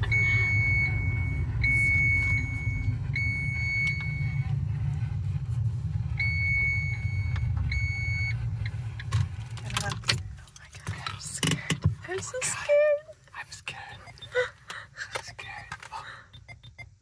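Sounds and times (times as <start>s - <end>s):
high electronic beep: 0.0s - 4.4s, 6.2s - 8.4s, 13.8s - 14.4s, 16.3s - 17.0s
car engine and road rumble: 0.0s - 17.0s.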